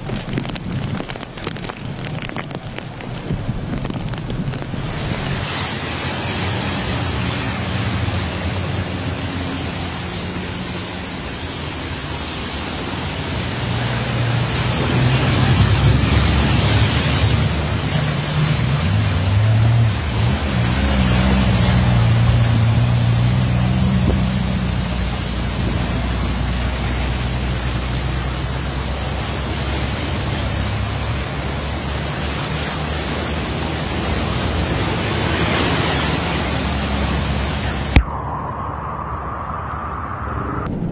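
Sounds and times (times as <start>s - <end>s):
floodwater rushing: 0.0s - 40.2s
heavy rain: 0.0s - 40.9s
low rumble: 36.5s - 40.9s.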